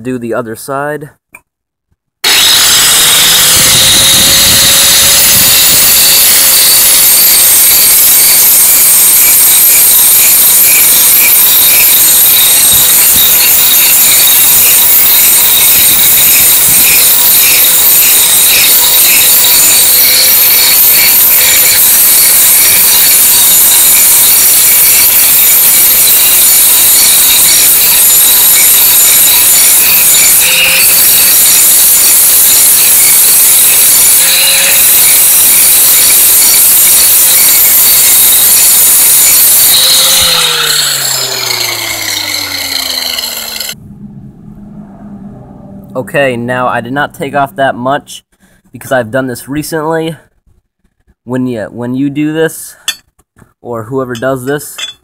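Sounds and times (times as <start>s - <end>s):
angle grinder grinding metal: 2.2s - 43.8s, 54.2s - 55.0s.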